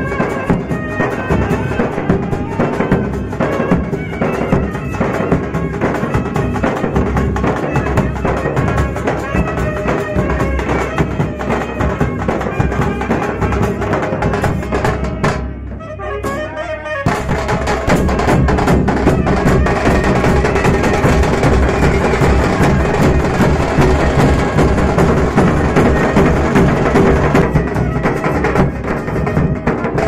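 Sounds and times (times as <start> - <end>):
barrel drums beaten fast: 0.0 - 15.6, 17.1 - 30.0
saxophones playing melody: 15.7 - 17.3.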